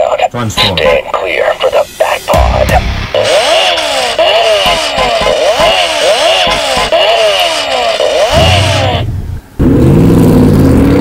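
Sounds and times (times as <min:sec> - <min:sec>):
synthesized sweeping tones: 0:01.6 - 0:09.6
vehicle engine sound effect: 0:02.3 - 0:11.0.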